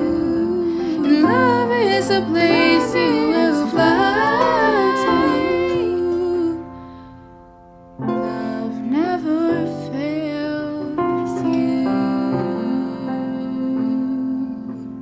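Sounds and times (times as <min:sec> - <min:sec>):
person singing gliding notes: 0:00.0 - 0:06.9
held accompaniment notes: 0:00.0 - 0:09.6.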